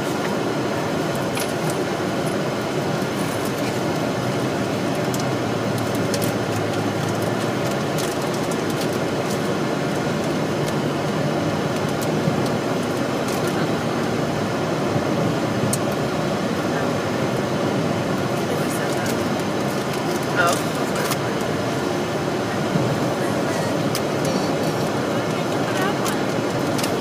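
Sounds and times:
car engine hum: 0:00.0 - 0:27.0
road and tyre noise: 0:00.0 - 0:27.0.

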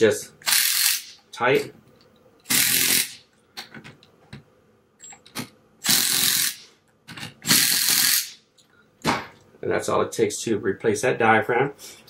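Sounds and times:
impact driver bursts: 0:00.4 - 0:01.2, 0:02.5 - 0:03.2, 0:05.8 - 0:06.6, 0:07.4 - 0:08.4.

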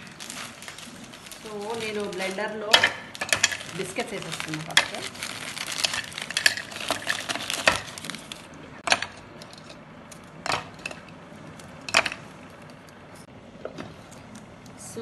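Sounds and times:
plastic wrapper crinkling: 0:00.0 - 0:08.6.

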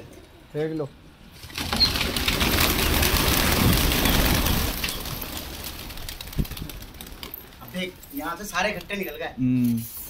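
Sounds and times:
pigeon wings flapping: 0:01.4 - 0:08.0.

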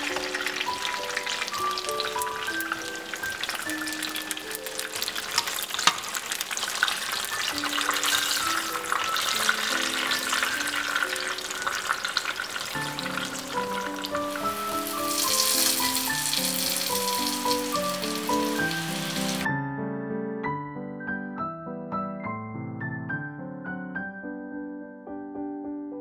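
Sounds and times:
food sizzling in hot oil: 0:00.0 - 0:19.5
soft background melody: 0:00.0 - 0:26.0.

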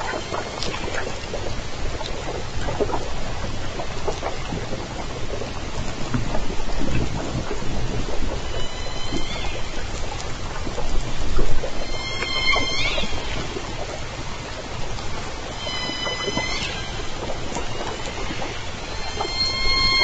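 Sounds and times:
killer whale high call: 0:00.0 - 0:01.5, 0:08.3 - 0:10.5, 0:11.6 - 0:20.0
killer whale clicks: 0:00.0 - 0:20.0
underwater water noise rumble: 0:00.0 - 0:20.0.

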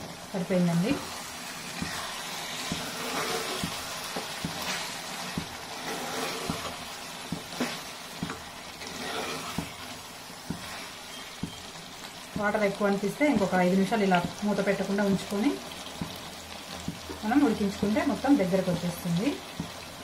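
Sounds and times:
curry sizzling: 0:00.0 - 0:20.0
spoon scraping a metal pot: 0:01.9 - 0:03.8, 0:05.7 - 0:06.8, 0:08.8 - 0:09.8.

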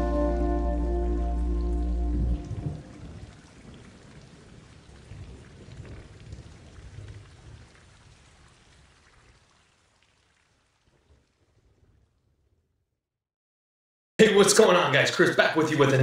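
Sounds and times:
outro music: 0:00.0 - 0:03.0
low rumbling crackling noise: 0:00.6 - 0:12.7.

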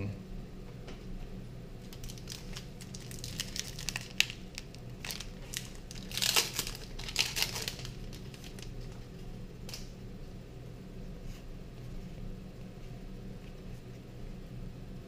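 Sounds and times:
foil wrappers tearing and crinkling: 0:01.8 - 0:09.9.

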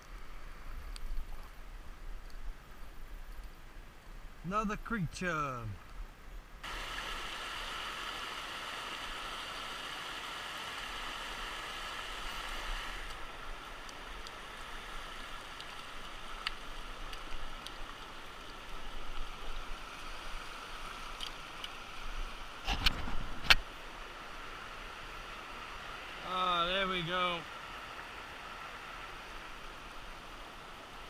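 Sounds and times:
stream rapids rushing: 0:06.6 - 0:31.0.

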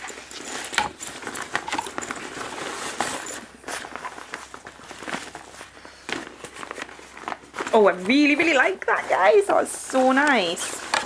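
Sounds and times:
handling clicks and knocks: 0:00.0 - 0:05.4, 0:10.0 - 0:11.0
fabric bag rustling and crinkling: 0:00.0 - 0:11.0.

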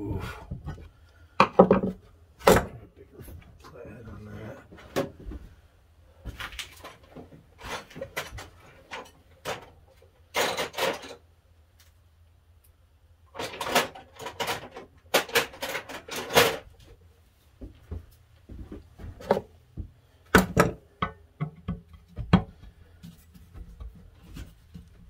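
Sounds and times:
metal tools clattering: 0:06.8 - 0:11.2, 0:13.3 - 0:16.7.

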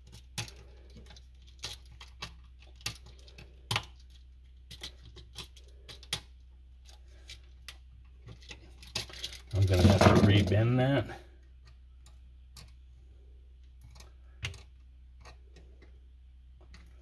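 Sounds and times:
copper wires being handled: 0:00.0 - 0:12.9.

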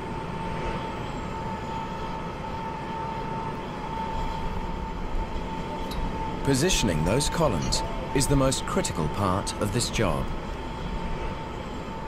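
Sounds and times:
crane motor whine: 0:00.0 - 0:12.0
noisy rumble: 0:06.4 - 0:11.1.

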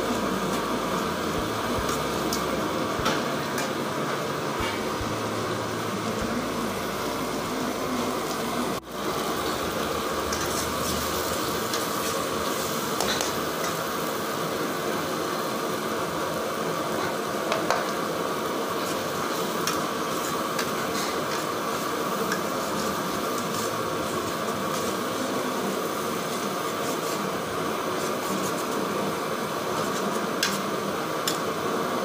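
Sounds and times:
food sizzling in a frying pan: 0:00.0 - 0:32.0
ladle stirring and scraping: 0:09.2 - 0:14.0, 0:18.7 - 0:25.3.

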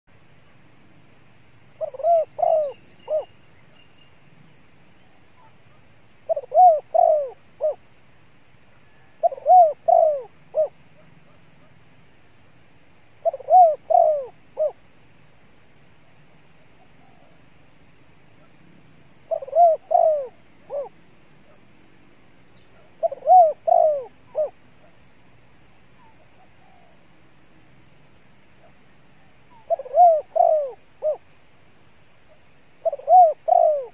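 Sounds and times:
dove cooing: 0:01.8 - 0:03.4, 0:05.1 - 0:07.9, 0:08.8 - 0:11.7, 0:13.2 - 0:14.8, 0:19.3 - 0:21.0, 0:22.6 - 0:25.0, 0:28.6 - 0:31.3, 0:32.8 - 0:33.9.

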